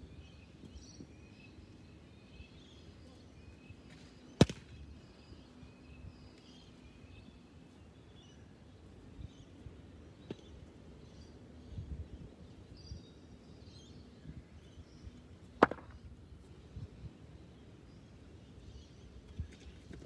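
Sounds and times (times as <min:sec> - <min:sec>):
faint birdsong: 0:00.0 - 0:20.0
outdoor background noise: 0:00.0 - 0:20.0
cricket ball striking bat: 0:04.4 - 0:04.7, 0:15.6 - 0:16.0.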